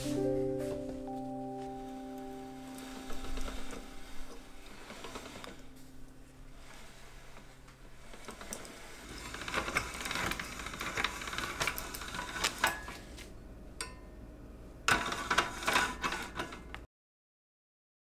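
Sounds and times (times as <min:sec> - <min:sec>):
pasta machine gears clicking: 0:06.8 - 0:12.9.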